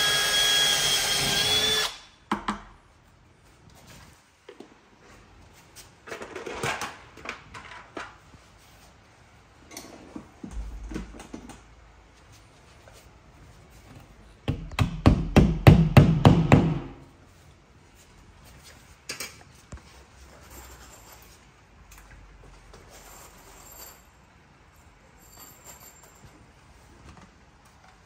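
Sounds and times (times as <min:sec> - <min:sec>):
hammer knocking: 0:14.5 - 0:17.0.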